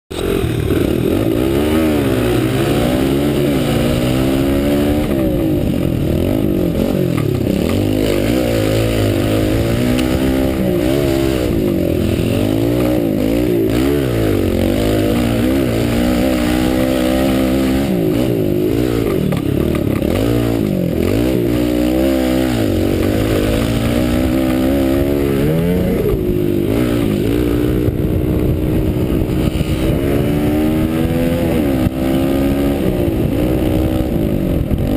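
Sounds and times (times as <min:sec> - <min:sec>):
pit bike engine revving: 0:00.1 - 0:34.9.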